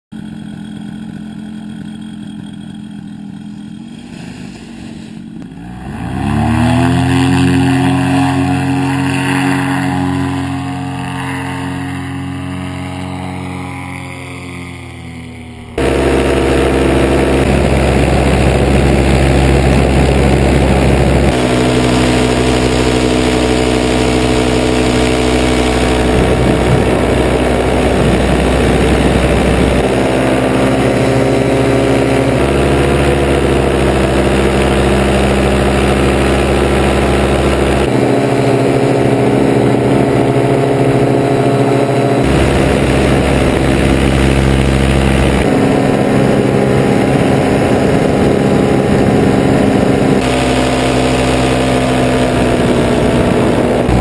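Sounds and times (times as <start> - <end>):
paramotor engine and propeller: 0.1 - 54.0.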